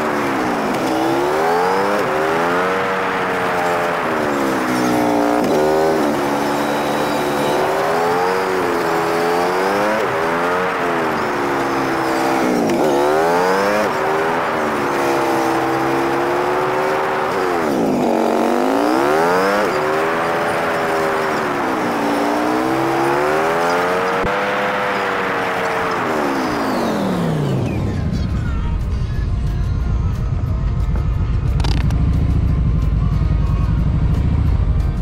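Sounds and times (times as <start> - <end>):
motorcycle engine revving: 0.0 - 35.0.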